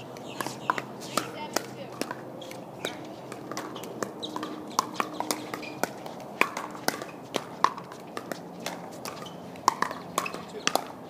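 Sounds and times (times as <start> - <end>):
paddles striking plastic ball: 3.3 - 11.0.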